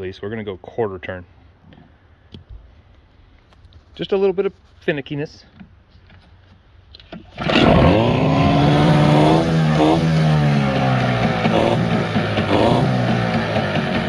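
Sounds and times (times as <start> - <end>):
outboard motor starting and running: 7.0 - 14.0.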